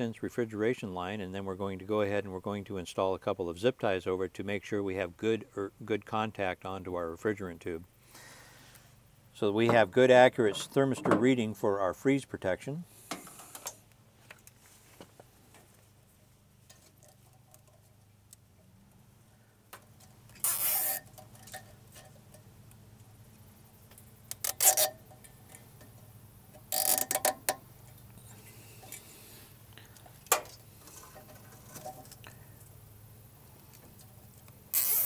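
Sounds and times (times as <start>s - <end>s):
zip tie ratcheting clicks: 20.3s - 21.1s, 24.2s - 25.0s, 26.7s - 27.6s, 34.4s - 35.0s.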